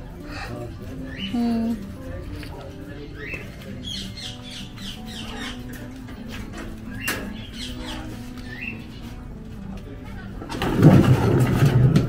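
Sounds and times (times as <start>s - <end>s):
parrots chirping and whistling: 3.2s - 5.8s.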